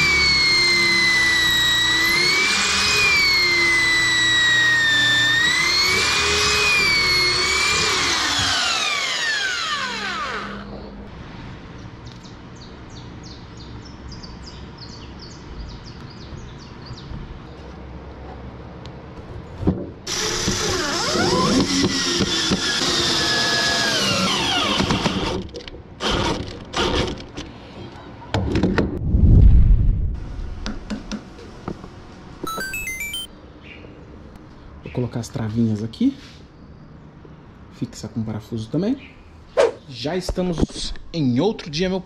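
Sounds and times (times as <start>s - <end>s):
cordless drill driving screw: 0.0s - 10.7s, 20.1s - 25.4s.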